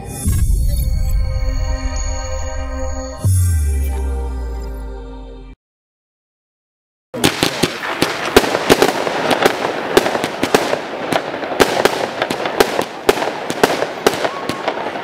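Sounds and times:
firework barrage crackling: 0:07.2 - 0:15.0.

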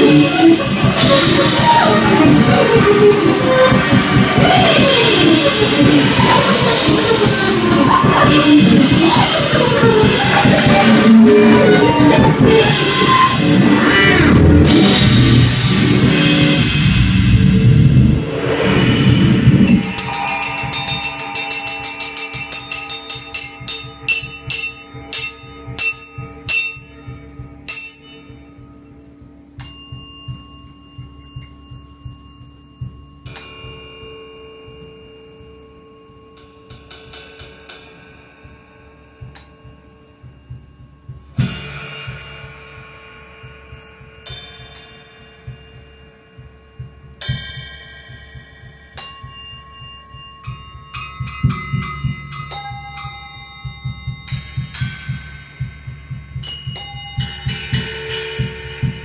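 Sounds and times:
drum stick strokes: 0:00.0 - 0:59.0
cymbal and bell-like strikes: 0:14.6 - 0:59.0.

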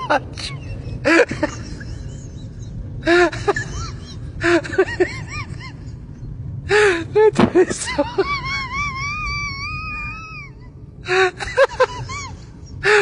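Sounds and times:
low rumble: 0:00.0 - 0:13.0
high-pitched person laughing: 0:07.6 - 0:13.0.

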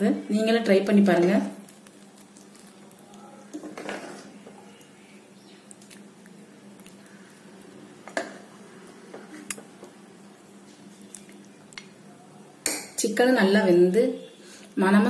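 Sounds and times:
wet gravy squish: 0:00.9 - 0:08.0.

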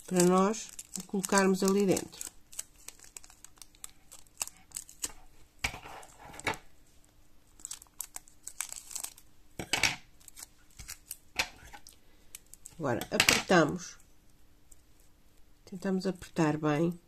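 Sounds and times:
packing tape crinkling: 0:00.0 - 0:05.3, 0:07.5 - 0:09.3, 0:10.2 - 0:12.8.

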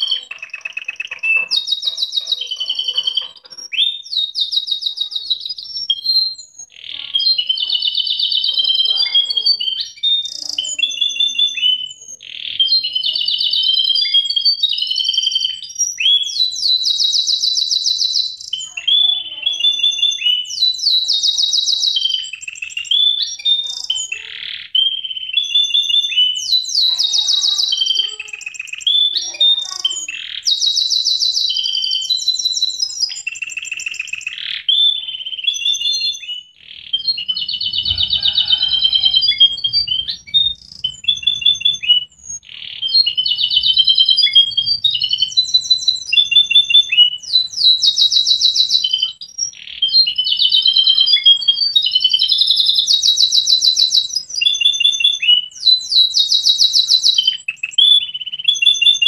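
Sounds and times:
canary singing: 0:00.0 - 0:59.0.

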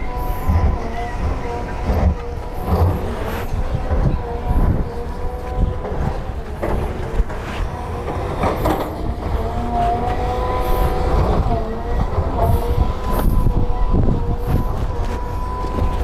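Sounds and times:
excavator diesel engine whining: 0:00.0 - 0:16.0.

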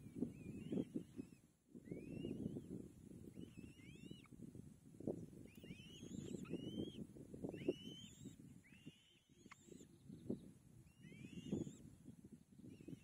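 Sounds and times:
bird whistled calls: 0:00.3 - 0:02.6, 0:03.4 - 0:04.3, 0:05.5 - 0:10.2, 0:10.9 - 0:11.8.

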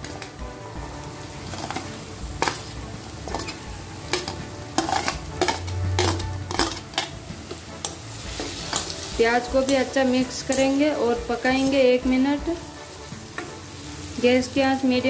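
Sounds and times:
frying sizzle: 0:00.0 - 0:15.0
spoon scraping metal pan: 0:01.3 - 0:10.8.

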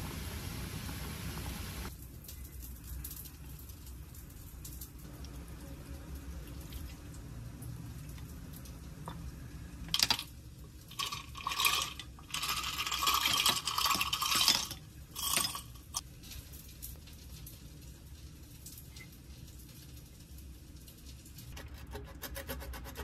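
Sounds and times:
low steady hum: 0:00.0 - 0:23.0
liquid pouring: 0:02.9 - 0:16.0
dishes and utensils clinking: 0:10.9 - 0:16.0.

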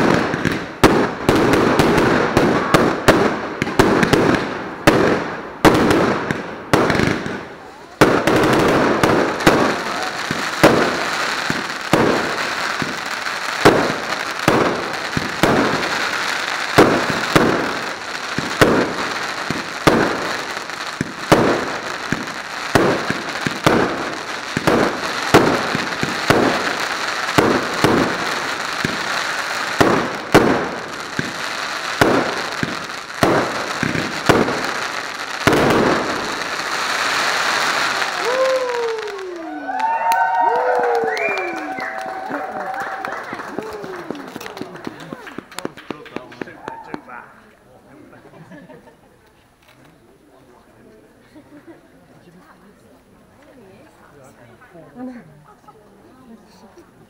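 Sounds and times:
fireworks hiss: 0:00.0 - 0:39.3
fireworks bangs: 0:00.0 - 0:47.2.

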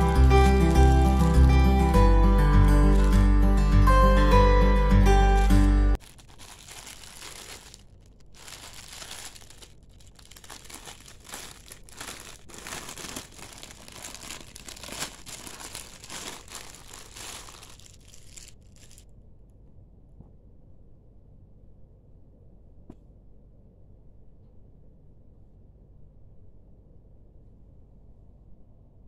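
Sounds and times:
plastic bag crinkling: 0:02.6 - 0:03.2, 0:05.4 - 0:19.1.

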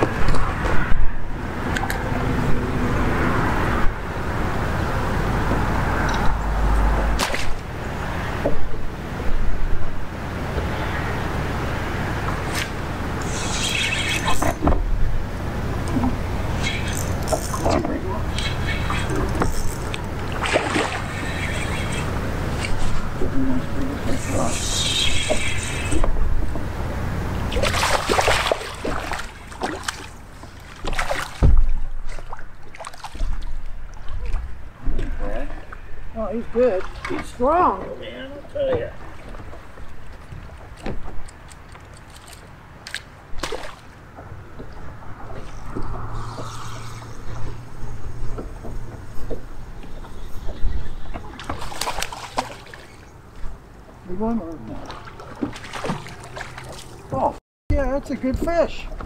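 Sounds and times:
water lapping on hull: 0:04.4 - 0:57.4
fish thrashing and splashing: 0:15.8 - 0:23.2, 0:27.5 - 0:34.5, 0:41.9 - 0:43.9, 0:50.5 - 0:53.1, 0:54.7 - 0:57.1.

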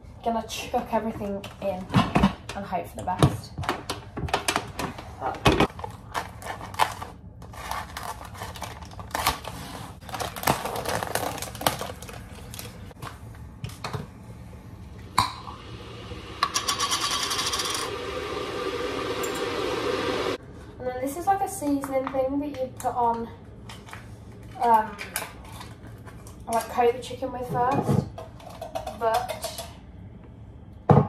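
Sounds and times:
packets rustling: 0:05.7 - 0:13.2
steady rushing noise: 0:15.3 - 0:20.4.

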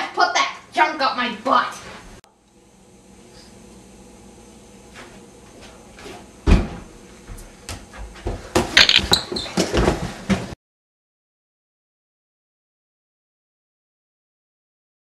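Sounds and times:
quick footsteps and knocks: 0:05.0 - 0:10.6.

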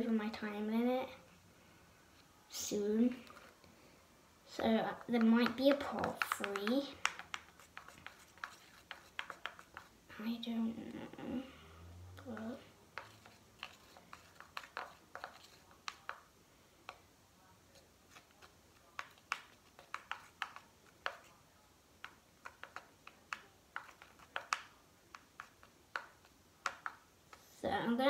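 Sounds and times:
sticky clicks of slime stirred: 0:04.8 - 0:10.0, 0:12.2 - 0:17.0, 0:17.7 - 0:21.4, 0:22.0 - 0:27.4.

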